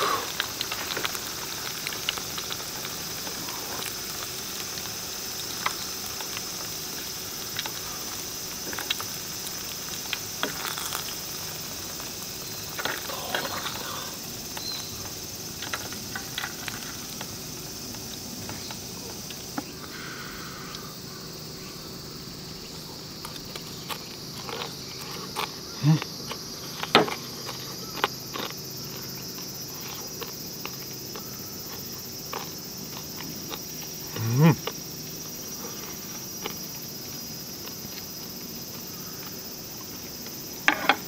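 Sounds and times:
hot oil sizzling: 0.0 - 23.2
insects chirring: 0.0 - 41.0.

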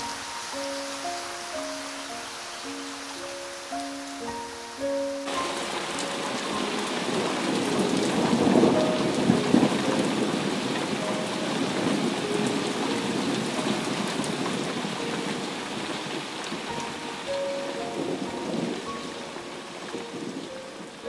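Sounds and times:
heavy rain falling: 0.0 - 21.0
thunder rumbling: 4.9 - 21.0.

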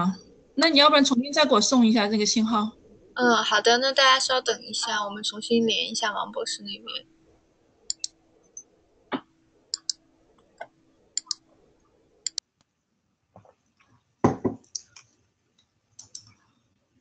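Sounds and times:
faint steady hum: 0.0 - 12.8
computer mouse clicks: 7.9 - 8.1, 9.8 - 10.0, 11.2 - 11.4, 16.0 - 16.4
loud thump: 14.2 - 14.6.

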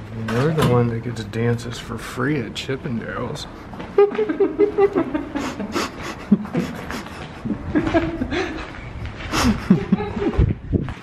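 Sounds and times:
men laughing: 3.9 - 10.6.

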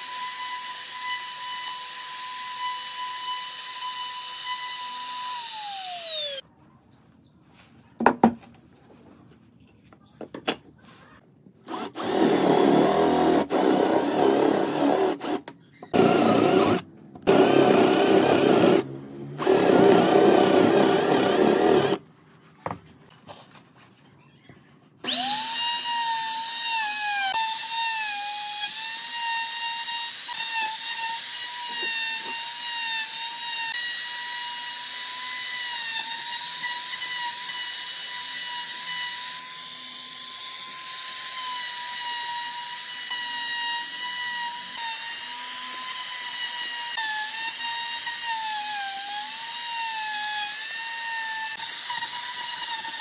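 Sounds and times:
cordless drill boring wood: 0.0 - 6.4, 11.7 - 22.0, 25.0 - 53.0
trim router whining: 11.7 - 22.0, 25.0 - 53.0.

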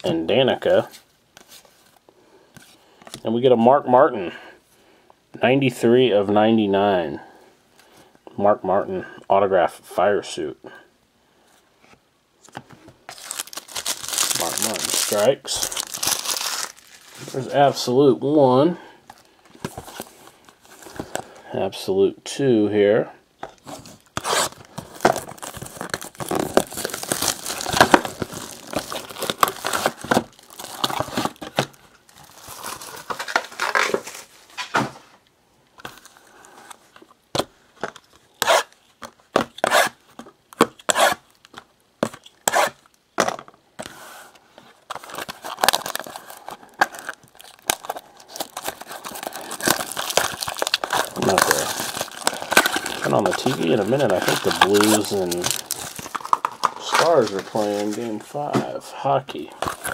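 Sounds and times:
plastic wrap crinkling: 13.1 - 17.7, 23.6 - 34.7, 44.7 - 58.4, 59.3 - 59.9.

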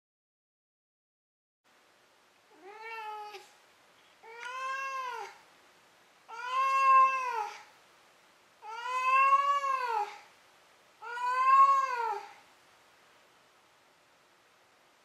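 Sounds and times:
cat meowing: 2.5 - 3.5, 4.2 - 5.4, 6.3 - 7.7, 8.6 - 10.2, 11.0 - 12.4.

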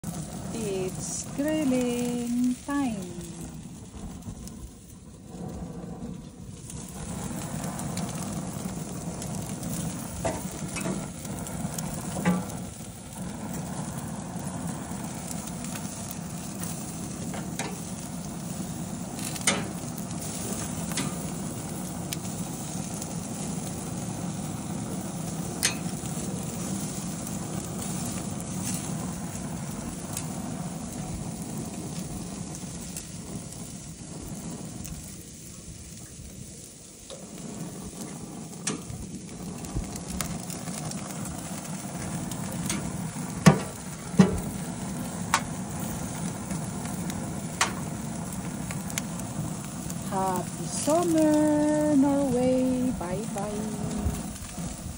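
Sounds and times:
food sizzling on grill: 0.0 - 54.9
metal tongs clicking on grate: 19.3 - 19.7, 25.6 - 25.9.

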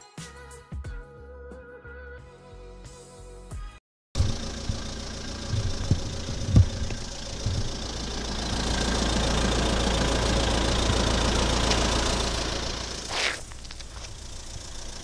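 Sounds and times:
car engine idling: 4.2 - 15.0
dull knocks: 5.5 - 7.8.

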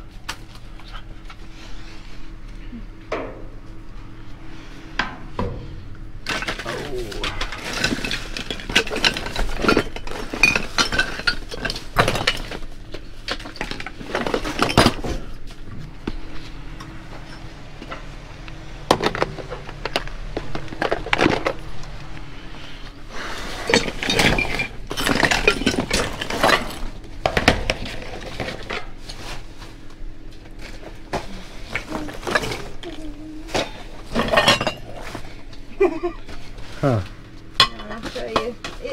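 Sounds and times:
household items clattering and clinking: 5.4 - 16.2, 23.3 - 29.5, 30.6 - 35.4.

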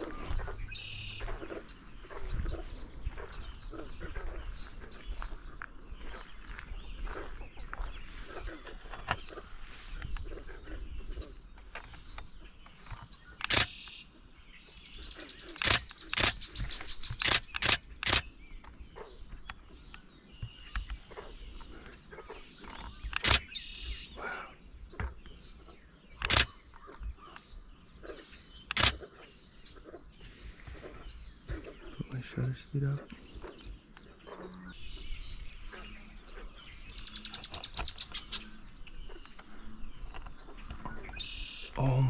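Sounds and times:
low wind rumble on microphone: 0.0 - 13.3
faint birdsong: 0.0 - 42.0
camera shutter clicks: 13.4 - 13.9, 15.6 - 18.3, 23.1 - 23.5, 26.2 - 26.5, 28.7 - 29.0.

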